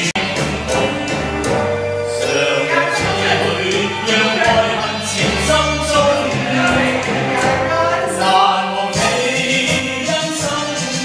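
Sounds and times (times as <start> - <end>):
karaoke backing track: 0.0 - 11.0
voices singing slow melody: 0.0 - 11.0.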